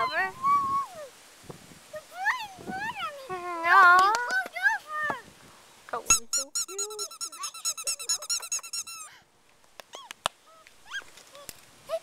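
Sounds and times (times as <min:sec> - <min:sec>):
puppies yipping: 0:06.1 - 0:09.1.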